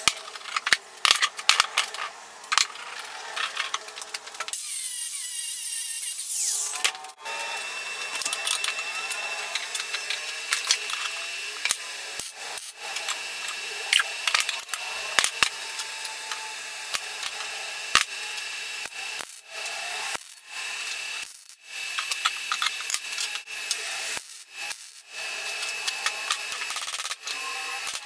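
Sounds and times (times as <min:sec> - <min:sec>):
arc welding crackling hiss: 0:00.0 - 0:28.0.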